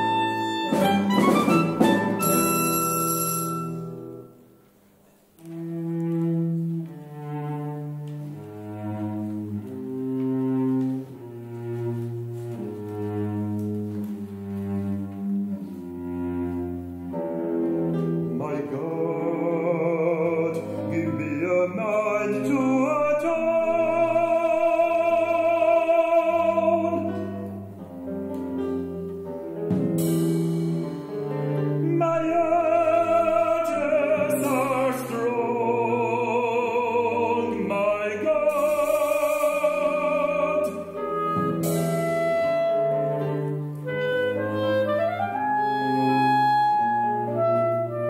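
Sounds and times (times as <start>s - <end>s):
operatic voice singing with vibrato: 18.4s - 27.2s, 31.8s - 41.0s.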